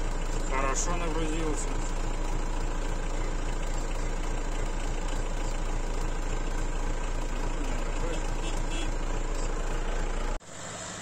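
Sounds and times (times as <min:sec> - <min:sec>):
combine harvester engine droning: 0:00.0 - 0:11.0.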